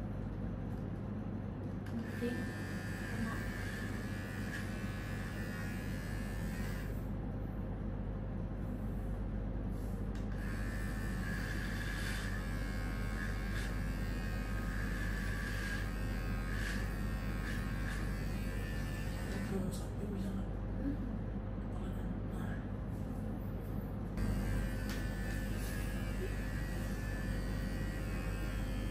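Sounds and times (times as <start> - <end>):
hair clippers buzzing: 1.9 - 7.0, 10.2 - 19.6, 24.2 - 28.9.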